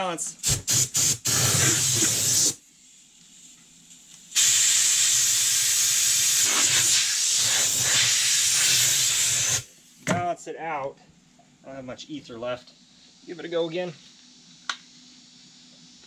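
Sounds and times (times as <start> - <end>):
compressed air hissing: 0.4 - 3.5, 4.3 - 10.1.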